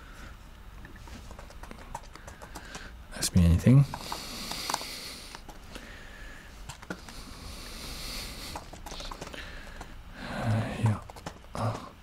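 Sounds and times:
keyboard keystrokes: 10.8 - 11.6.

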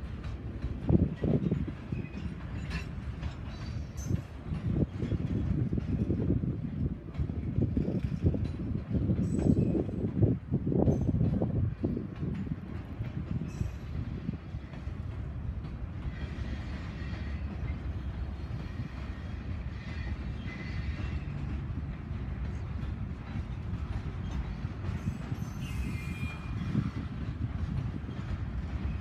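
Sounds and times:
freight train wheels rumbling: 0.0 - 29.0
faint high wheel squeals: 16.1 - 21.4, 24.2 - 27.0.

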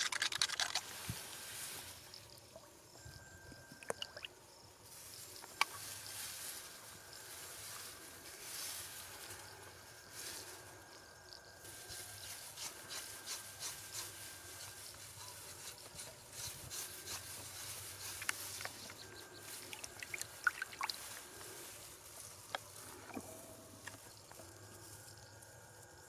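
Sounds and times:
knife scraping leaf: 11.9 - 19.9.

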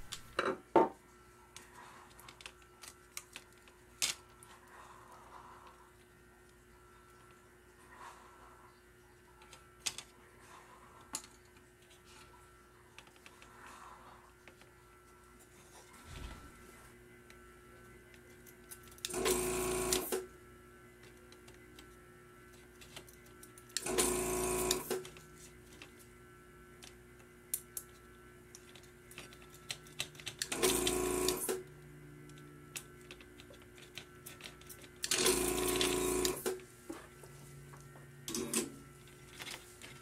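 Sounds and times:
desoldering vacuum pump bursts: 23.8 - 25.0, 30.5 - 31.6.

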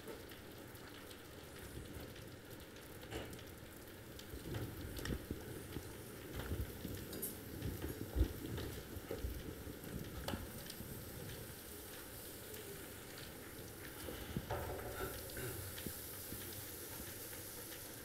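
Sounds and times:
liquid nitrogen sizzling: 0.0 - 18.0.

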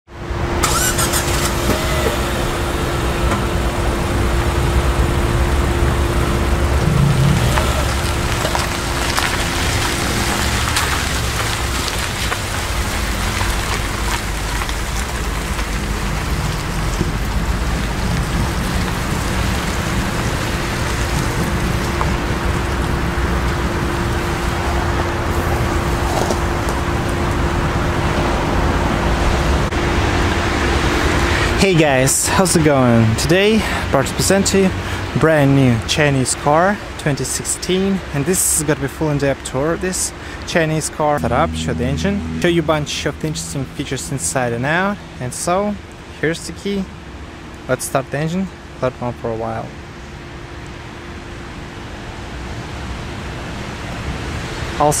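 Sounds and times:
light rain: 0.6 - 40.5, 49.6 - 55.0
faint steady hum: 41.2 - 47.7.

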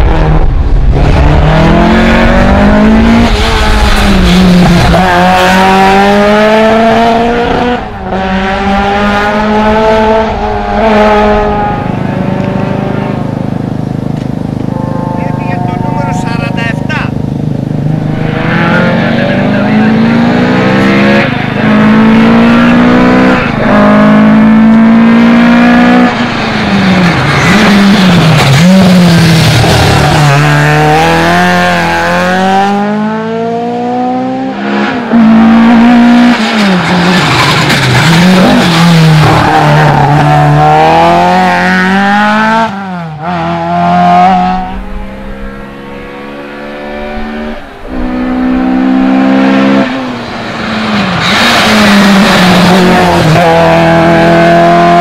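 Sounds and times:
rally car engine revving: 0.0 - 55.0.

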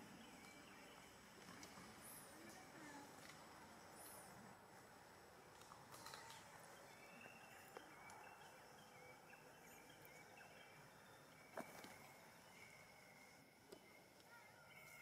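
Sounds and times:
faint high chirps: 6.0 - 15.0.

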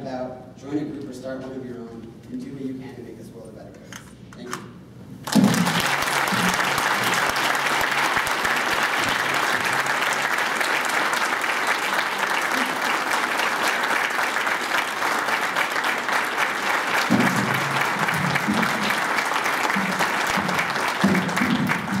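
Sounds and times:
audience applauding: 5.2 - 22.0.

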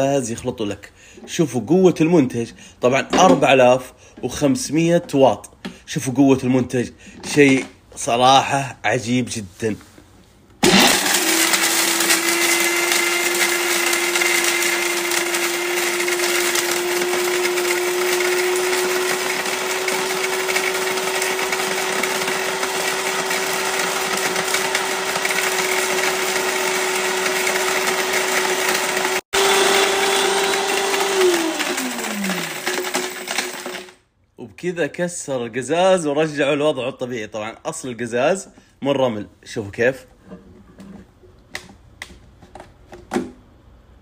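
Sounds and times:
blender motor whine: 10.6 - 34.0.

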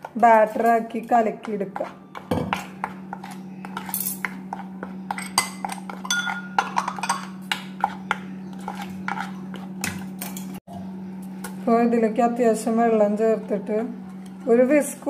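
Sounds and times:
spoon stirring flour in bowl: 0.0 - 10.4.

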